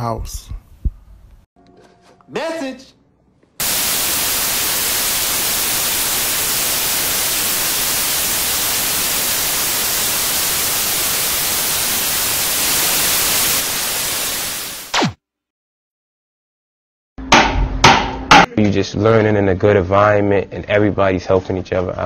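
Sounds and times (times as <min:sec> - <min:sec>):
white noise static hiss: 0:03.6 - 0:15.0.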